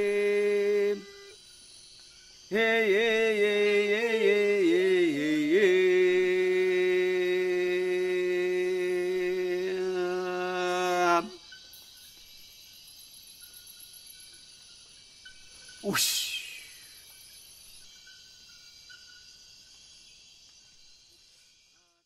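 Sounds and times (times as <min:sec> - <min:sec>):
person humming a chant: 0:00.0 - 0:01.4, 0:02.5 - 0:11.4, 0:15.8 - 0:16.8.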